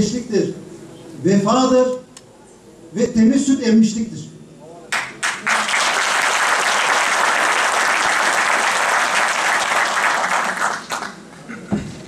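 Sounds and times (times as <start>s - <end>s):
audience applauding: 4.9s - 11.3s.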